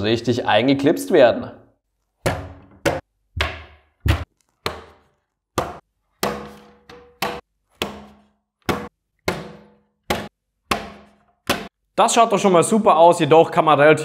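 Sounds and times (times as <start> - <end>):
wooden shelf boards knocking: 2.2 - 11.7.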